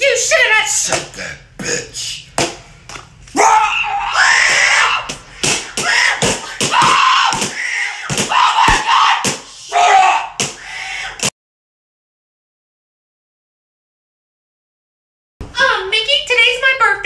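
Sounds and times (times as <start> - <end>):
person screaming loudly: 3.4 - 5.1, 5.7 - 11.2.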